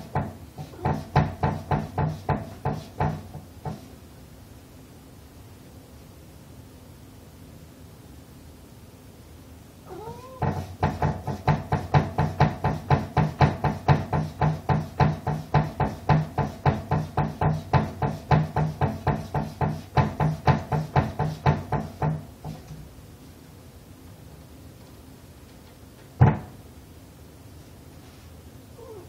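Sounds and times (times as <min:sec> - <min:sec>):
door knocking against frame: 0:00.0 - 0:03.9, 0:10.3 - 0:22.8, 0:26.2 - 0:26.6
cat meowing: 0:09.9 - 0:10.5, 0:28.8 - 0:29.0.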